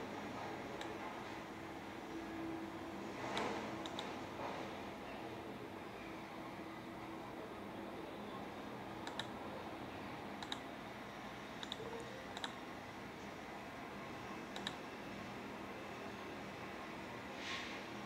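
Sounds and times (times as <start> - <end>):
mouse and keyboard clicks: 3.4 - 4.1, 9.0 - 9.3, 10.4 - 10.6, 11.6 - 12.6, 14.6 - 14.8.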